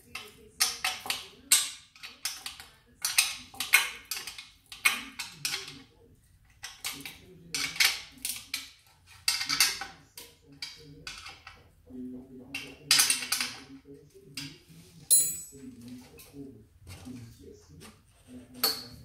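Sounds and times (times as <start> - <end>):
metal tools clinking on metal frame: 15.1 - 15.7.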